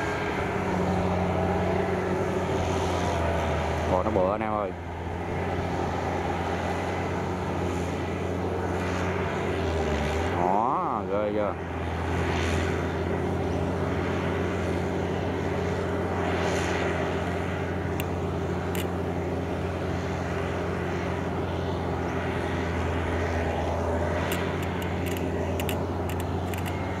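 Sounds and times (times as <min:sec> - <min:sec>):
diesel engine running under load: 0:00.0 - 0:27.0
sharp clicks: 0:18.7 - 0:18.9, 0:24.2 - 0:26.8.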